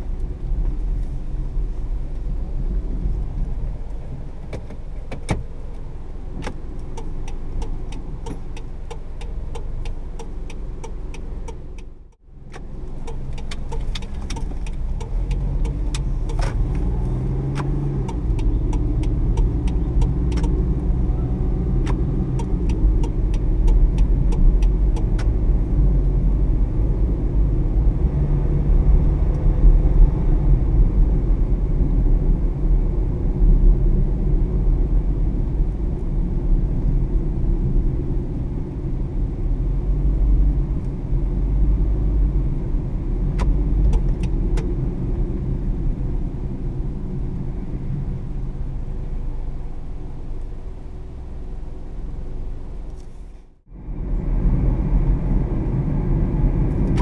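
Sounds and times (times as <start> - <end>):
car engine and road rumble: 0.0 - 57.0
light clicking ticks: 6.4 - 12.2, 17.5 - 20.6.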